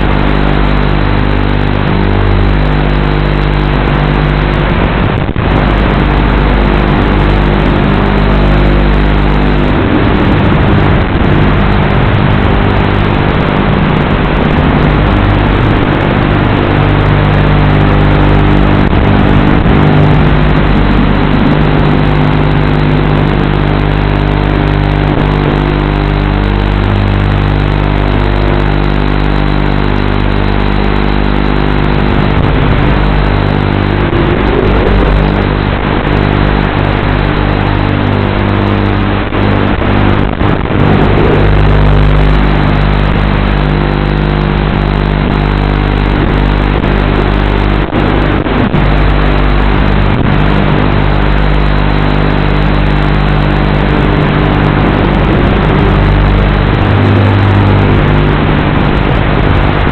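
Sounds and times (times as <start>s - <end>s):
quadcopter motors and propellers: 32.0s - 36.5s.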